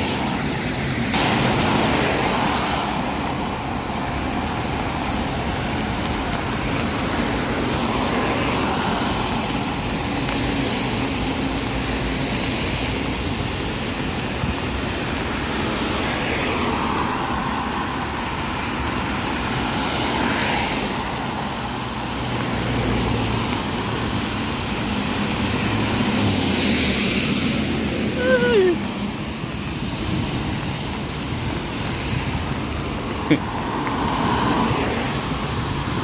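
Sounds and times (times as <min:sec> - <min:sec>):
car engine noise: 0:00.0 - 0:36.0
tyres hissing on wet road: 0:00.0 - 0:36.0.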